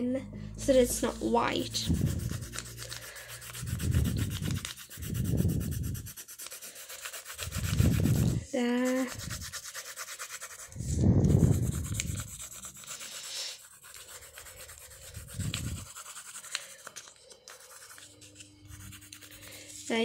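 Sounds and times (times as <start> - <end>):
pencil scratching on paper: 0.7 - 20.0.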